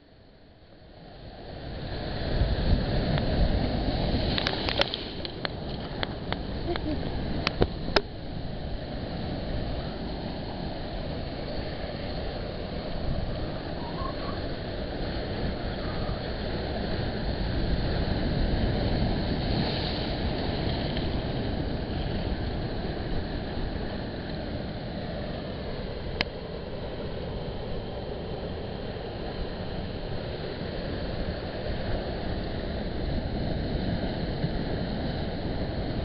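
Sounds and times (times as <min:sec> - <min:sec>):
surf breaking on rocks: 0:02.1 - 0:27.4.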